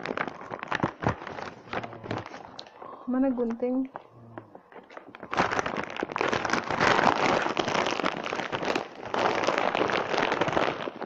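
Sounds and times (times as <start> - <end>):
paper bag tearing and crinkling: 0.0 - 2.5, 4.8 - 11.0.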